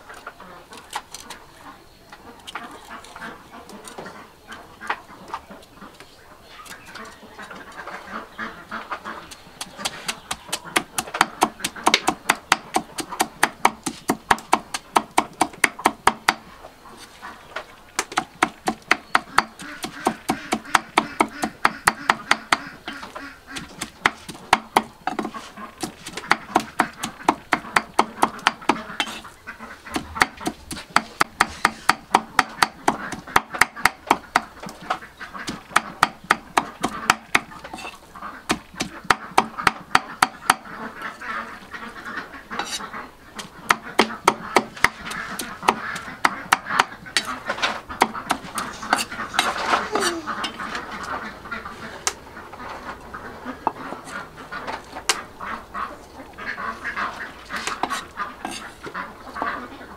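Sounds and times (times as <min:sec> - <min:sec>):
cleaver chopping meat on wood: 0:09.6 - 0:16.5, 0:18.0 - 0:22.8, 0:23.5 - 0:29.2, 0:29.9 - 0:40.7, 0:43.4 - 0:47.4, 0:48.0 - 0:49.2.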